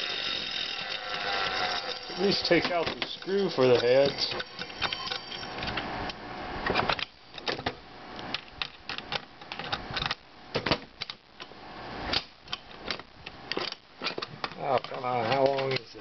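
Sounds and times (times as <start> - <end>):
screwdriver clicking and scraping: 0.0 - 5.8.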